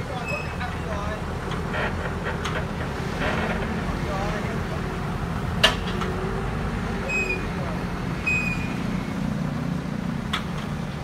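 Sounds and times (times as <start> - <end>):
forklift engine running: 0.0 - 11.0
high squeaks: 0.2 - 0.7.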